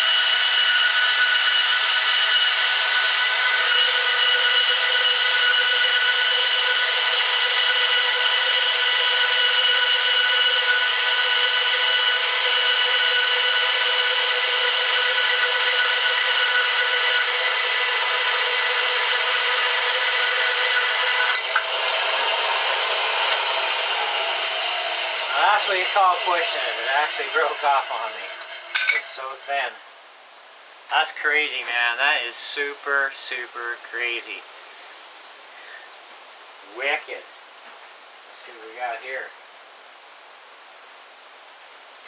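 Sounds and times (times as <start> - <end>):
bandsaw cutting wood: 0.0 - 29.7.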